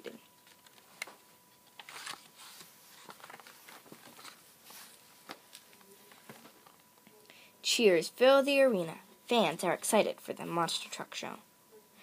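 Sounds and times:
book pages rustling: 0.4 - 6.8.

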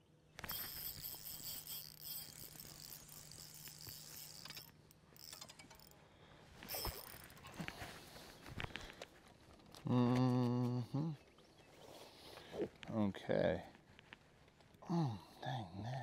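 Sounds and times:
fishing reel ticking and whirring: 0.4 - 6.0, 6.6 - 7.4.

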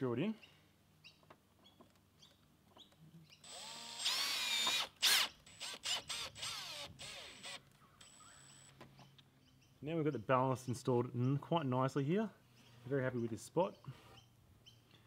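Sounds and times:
power drill driving a screw: 3.4 - 8.8.

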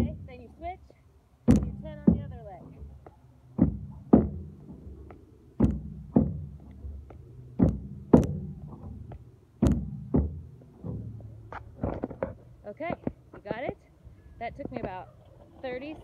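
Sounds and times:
sneakers thunking on metal bench: 1.4 - 12.4.

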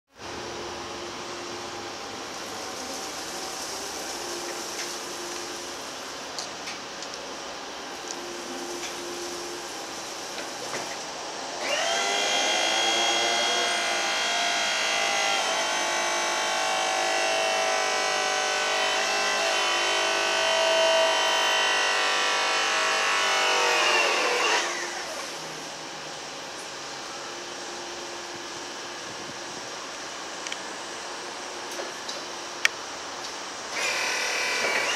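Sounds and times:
hydraulic pump motor whining: 11.5 - 25.4, 33.7 - 34.9.

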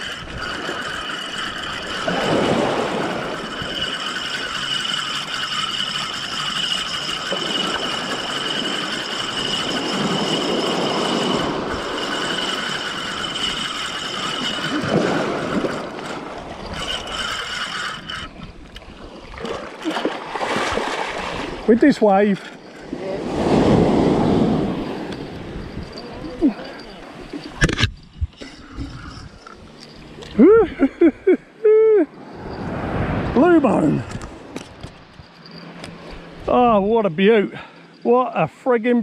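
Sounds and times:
surf washing: 0.0 - 18.2, 18.8 - 27.5, 32.0 - 34.6
fishing reel whirring: 0.0 - 32.8, 33.4 - 38.2.

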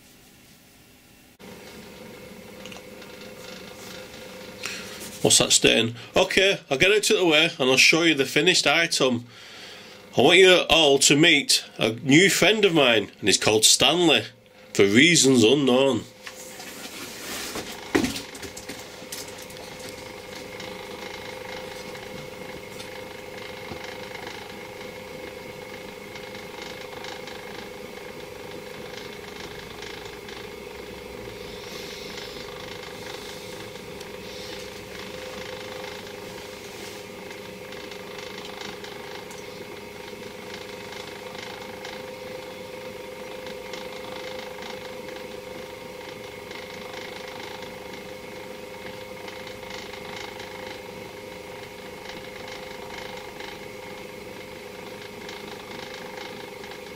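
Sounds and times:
small electric motor humming: 16.4 - 56.9.

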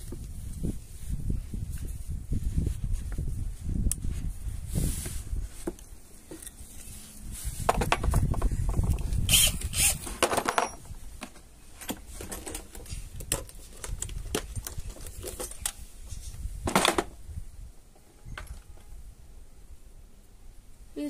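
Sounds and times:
scraping rustles: 0.1 - 16.6.

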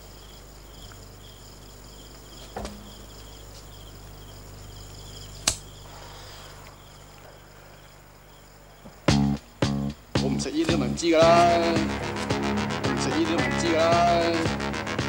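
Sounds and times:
crickets chirping: 0.0 - 15.0
steady low hum: 0.0 - 15.0
sharp clicks: 5.4 - 5.7.

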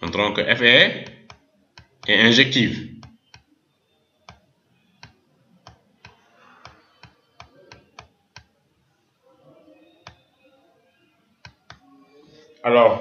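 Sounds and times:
computer mouse clicks: 1.0 - 2.1, 3.0 - 3.5, 4.2 - 8.5, 10.0 - 10.2, 11.4 - 11.9.

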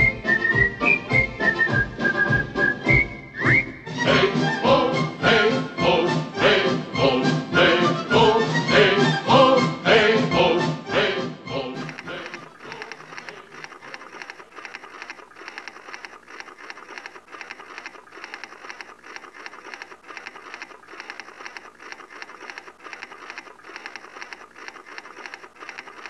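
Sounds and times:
typewriter keystrokes clattering: 11.8 - 26.0.

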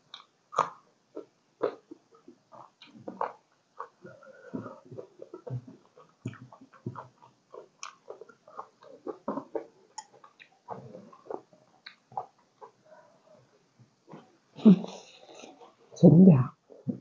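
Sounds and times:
person chewing and biting: 0.1 - 12.8.

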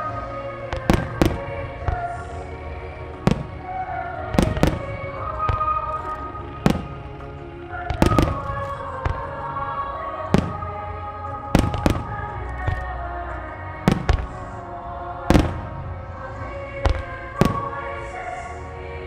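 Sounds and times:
music playing: 0.0 - 19.0
fireworks booming: 0.7 - 2.3, 3.1 - 9.6, 10.3 - 10.9, 11.5 - 13.0, 13.8 - 14.6, 15.3 - 16.0, 16.8 - 18.1.

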